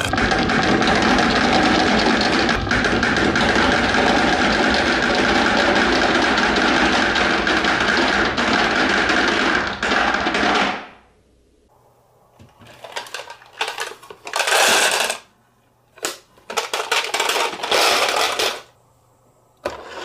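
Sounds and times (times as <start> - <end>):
glass marbles rattling in plastic bin: 12.7 - 15.3, 16.5 - 18.7.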